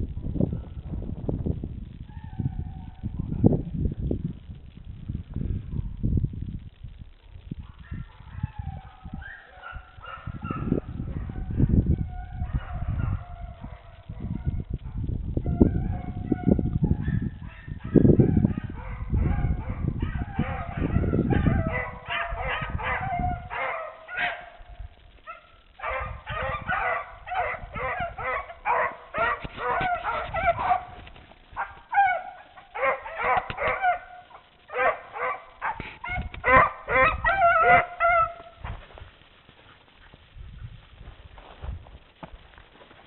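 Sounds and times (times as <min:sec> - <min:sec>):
dogs baying with high yelps: 0:07.6 - 0:38.9.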